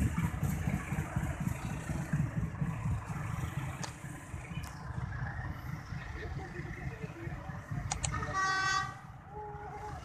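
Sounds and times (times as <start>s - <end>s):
train rumbling along track: 0.0s - 10.0s
short clicks: 7.9s - 8.2s.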